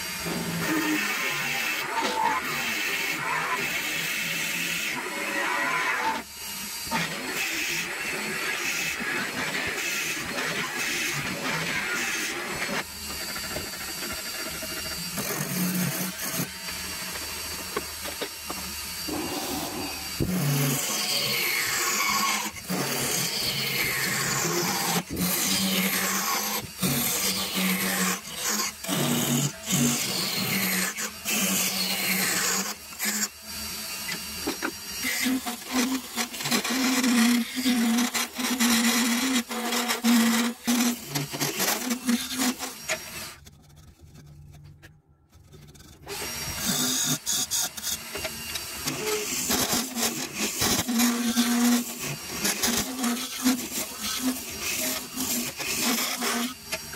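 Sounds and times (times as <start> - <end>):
lathe tool scraping wood: 0.0 - 33.3, 45.3 - 56.9
lathe motor hum: 11.2 - 22.8.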